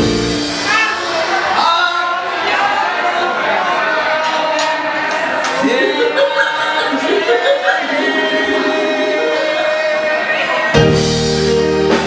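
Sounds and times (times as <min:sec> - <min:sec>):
instrumental chords with heavy bass: 0:00.0 - 0:00.7, 0:10.8 - 0:12.0
backing music: 0:00.0 - 0:01.8, 0:07.7 - 0:12.0
person singing through microphone: 0:05.6 - 0:11.2.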